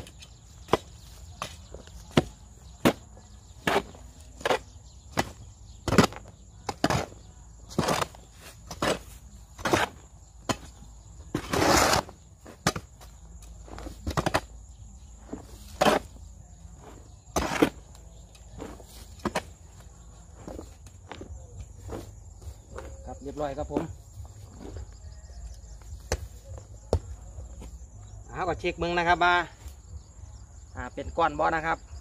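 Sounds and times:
garden tool scraping compost: 0.0 - 25.1.

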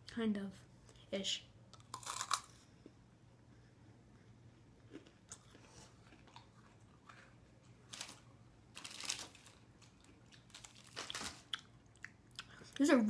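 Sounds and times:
faint room hum: 0.0 - 13.0
snack packaging rustling: 5.0 - 11.8.

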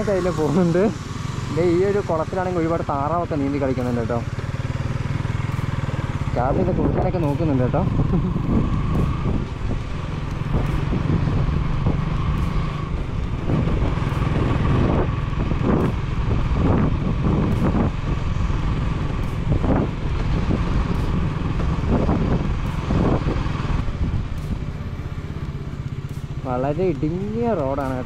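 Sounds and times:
vehicle engine and road rumble: 0.0 - 28.0
wind on microphone: 6.4 - 25.0.

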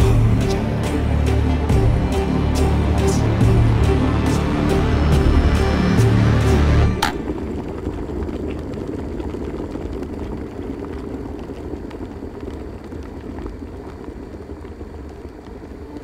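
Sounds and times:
electric kettle boiling: 6.5 - 16.0.

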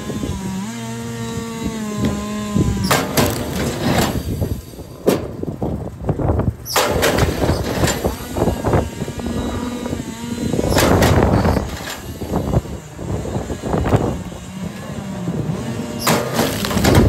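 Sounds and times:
wood splitter motor running: 0.0 - 17.0
wood cracking as it splits: 2.8 - 4.2, 16.0 - 17.0.

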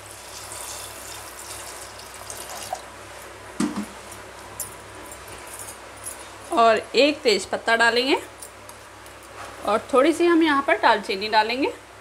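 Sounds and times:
water pouring and splashing: 0.2 - 2.8
brief knock: 3.6 - 3.9.

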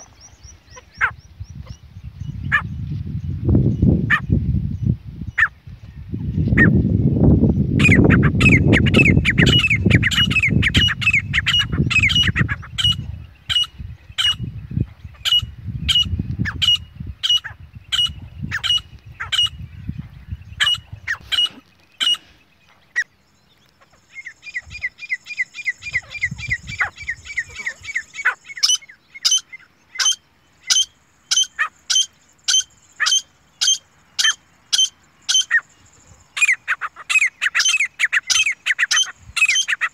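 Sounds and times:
bird's sharp repeated call: 7.7 - 14.5, 15.1 - 23.2, 23.8 - 39.9
fast short bird chirps: 15.1 - 23.1.

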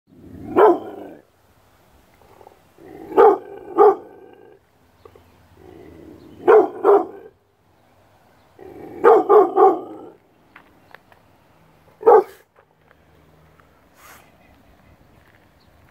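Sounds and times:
dog barking: 0.4 - 1.2, 3.1 - 4.2, 6.4 - 7.3, 9.0 - 10.2, 12.0 - 12.5.

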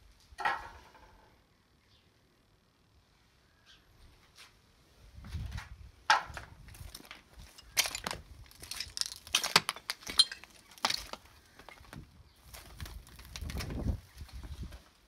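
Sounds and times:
footsteps crunching on broken glass: 6.6 - 14.6.

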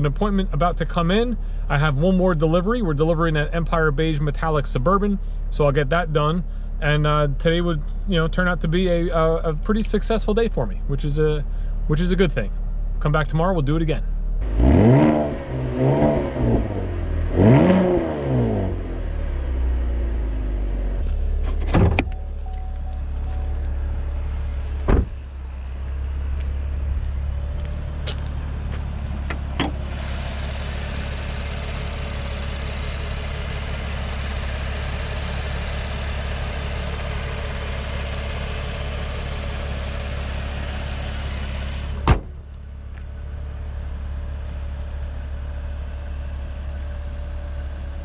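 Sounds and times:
car engine idling: 0.0 - 48.0
car door thumps: 21.5 - 22.2, 24.8 - 25.3, 42.0 - 42.4
loud hood slam: 21.5 - 22.2, 24.8 - 25.3, 42.0 - 42.5.

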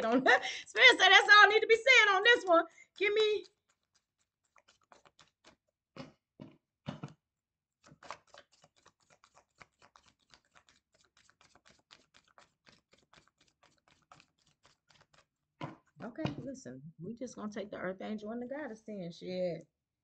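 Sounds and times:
cards shuffling with flicking clicks: 7.9 - 15.3
cards slapping: 7.9 - 15.8.

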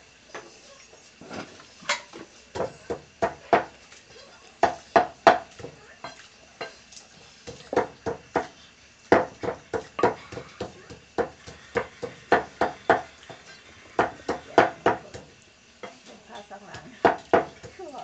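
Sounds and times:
wet squelching pounding in mortar: 2.5 - 3.8, 4.6 - 6.8, 7.4 - 15.4, 16.8 - 17.9.

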